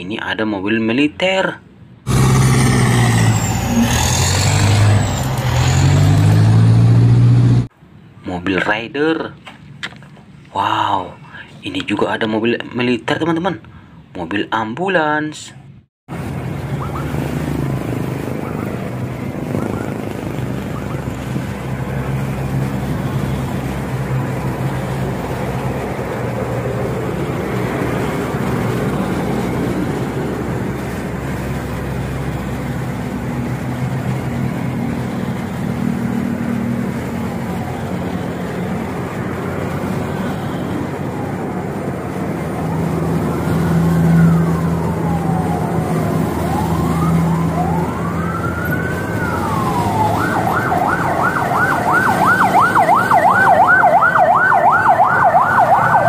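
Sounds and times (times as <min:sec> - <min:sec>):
street traffic: 0:00.0 - 0:56.0
truck engines driving past: 0:01.6 - 0:08.4, 0:15.7 - 0:56.0
siren wailing and yelping: 0:16.7 - 0:17.5, 0:18.2 - 0:22.2, 0:42.4 - 0:56.0.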